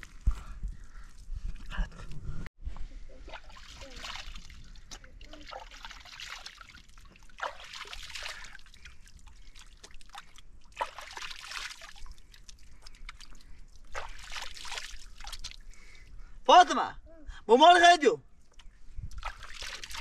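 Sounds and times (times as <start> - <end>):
hands splashing in water: 3.3 - 15.6, 19.1 - 20.0.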